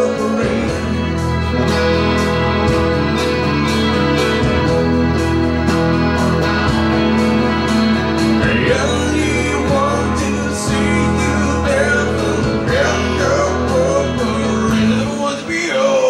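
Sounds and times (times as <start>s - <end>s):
man singing a ballad: 0.0s - 1.3s, 8.4s - 16.0s
electric guitar: 0.0s - 16.0s
low backing chords: 0.0s - 16.0s.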